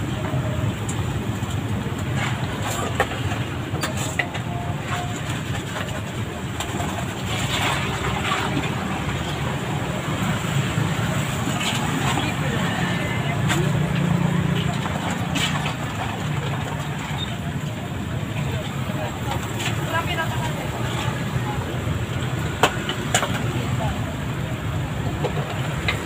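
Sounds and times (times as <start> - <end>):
road traffic rumble: 0.0 - 26.0.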